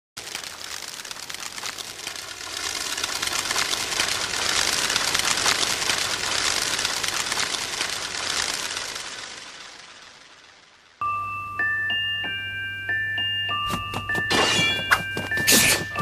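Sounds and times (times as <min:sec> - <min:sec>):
doves wings fluttering: 0:00.2 - 0:11.0.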